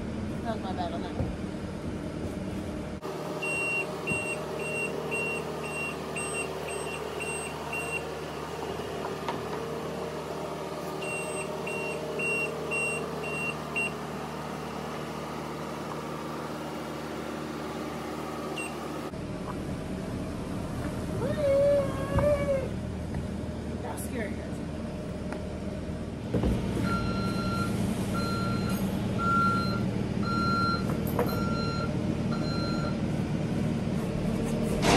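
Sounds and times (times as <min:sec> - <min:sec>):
loader engine running: 0:00.0 - 0:34.9
reversing alarm beeping: 0:03.4 - 0:08.1, 0:11.0 - 0:14.0, 0:18.6 - 0:18.8, 0:26.8 - 0:33.0.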